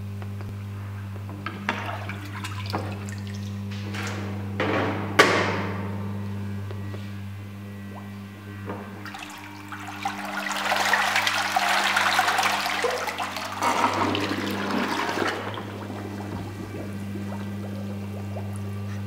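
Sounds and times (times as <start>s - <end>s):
steady low hum: 0.0s - 19.0s
hot tub water churning and splashing: 1.4s - 3.7s, 8.9s - 18.7s.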